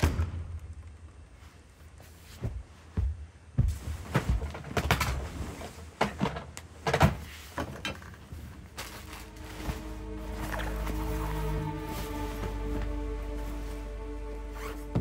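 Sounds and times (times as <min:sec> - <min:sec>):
rustling: 0:07.2 - 0:15.0.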